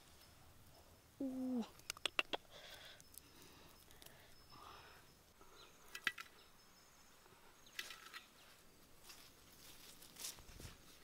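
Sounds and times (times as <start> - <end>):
hands in dry sandy soil: 7.6 - 11.0.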